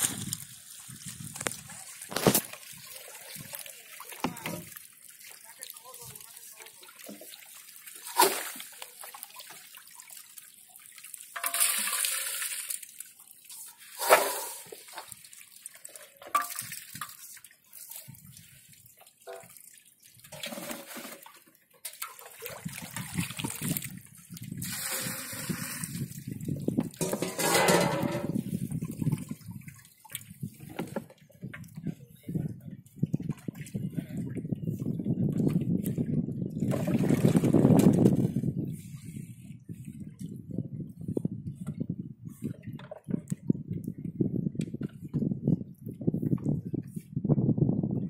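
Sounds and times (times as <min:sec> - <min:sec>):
sharp water splashes: 0:00.0 - 0:18.1, 0:21.9 - 0:26.3
water sloshing and pouring: 0:00.0 - 0:32.3, 0:32.9 - 0:41.7, 0:42.3 - 0:44.0.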